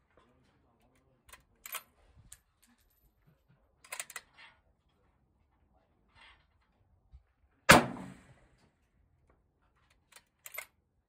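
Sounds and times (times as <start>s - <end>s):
rifle shot: 7.7s - 8.4s.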